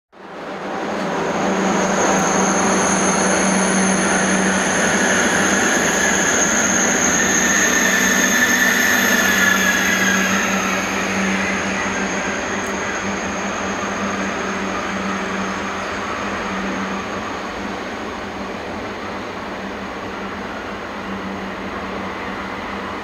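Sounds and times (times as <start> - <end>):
train rumbling: 0.2 - 23.0
faint wheel squeal: 1.7 - 17.2.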